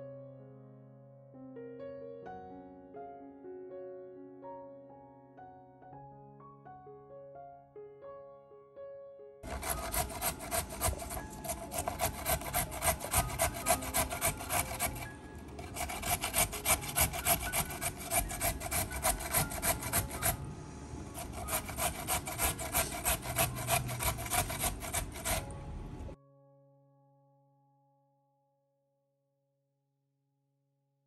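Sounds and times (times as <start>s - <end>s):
carrot rasping on metal grater: 9.4s - 20.4s, 21.1s - 25.5s.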